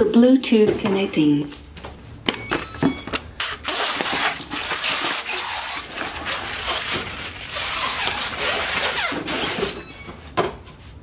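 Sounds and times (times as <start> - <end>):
wheels scraping over cardboard: 4.0 - 9.8.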